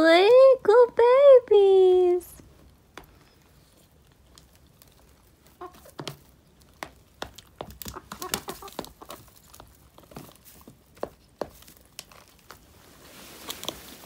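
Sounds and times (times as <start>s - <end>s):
hens pecking at plastic tub: 2.5s - 14.0s
hens clucking: 5.2s - 6.6s, 7.4s - 9.7s.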